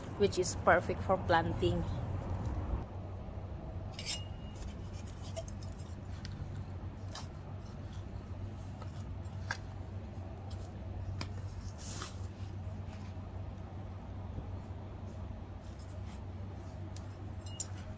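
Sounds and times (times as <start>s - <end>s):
low rumble: 1.2s - 3.9s.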